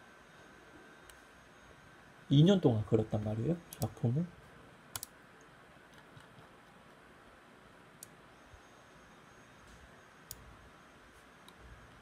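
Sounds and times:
computer mouse clicks: 3.7 - 4.0, 4.9 - 7.0, 10.2 - 10.5.

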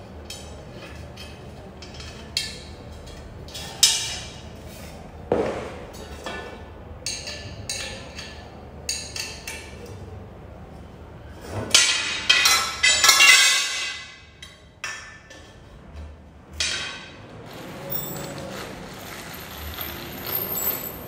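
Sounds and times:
metal tubes clinking: 11.7 - 15.4, 16.6 - 21.0.

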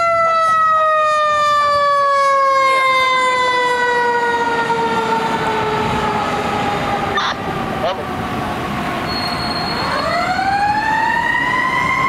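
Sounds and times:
fire engine siren winding down: 0.0 - 12.0
vehicle rumble: 4.8 - 12.0.

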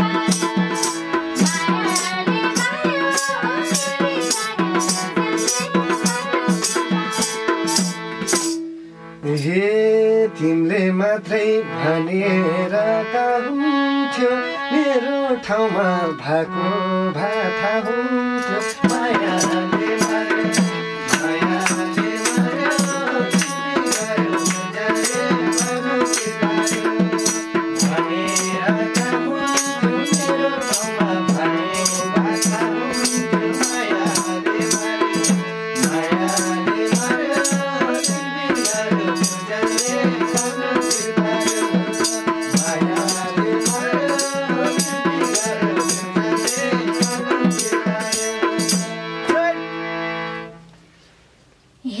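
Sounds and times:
person singing: 0.0 - 8.5, 9.2 - 49.7
hand drum beat: 0.0 - 8.6, 18.8 - 30.4
jingling tambourines: 0.0 - 8.6, 18.4 - 49.1
harmonium melody: 0.0 - 51.0.

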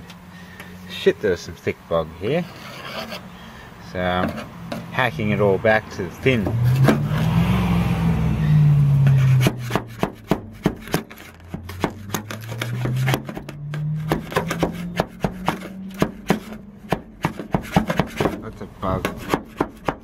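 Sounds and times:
screwdriver scraping filler off metal: 9.1 - 16.6.

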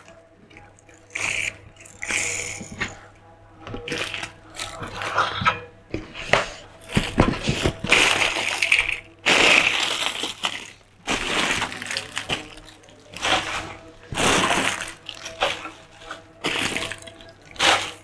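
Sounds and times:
plastic bags crinkling: 0.0 - 3.0, 3.7 - 5.6, 6.2 - 18.0
plastic toys knocking down: 6.3 - 18.0.

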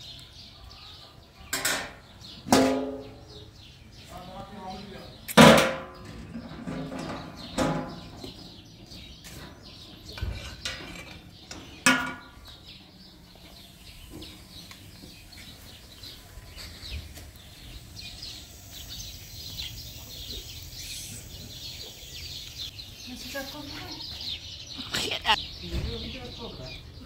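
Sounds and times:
small birds chirping: 0.0 - 27.0
metal cookware clanking: 1.6 - 3.2, 10.3 - 12.4.

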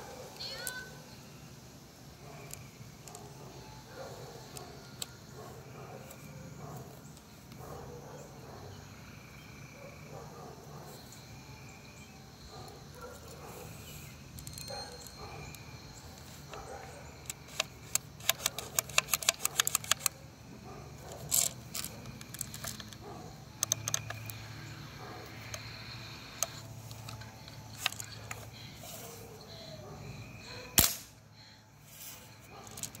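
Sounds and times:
bb gun clicks and rattles: 14.4 - 20.3, 21.0 - 28.7, 30.7 - 31.2, 32.5 - 33.0
loud sharp crack: 30.8 - 31.2.

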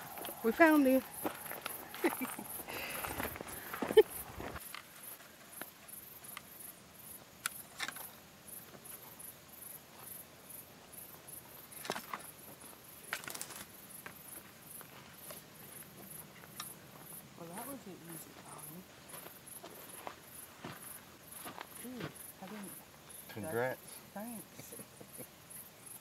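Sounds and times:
cracks and rustles in dry brush: 0.0 - 6.5, 7.4 - 8.2, 11.6 - 18.4
insects chirping: 0.0 - 26.0.

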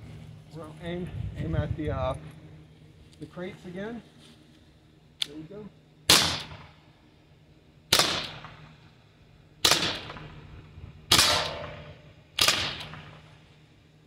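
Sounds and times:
pistol shots cracking: 6.1 - 6.8, 7.9 - 8.7, 9.6 - 10.3, 11.1 - 13.2.

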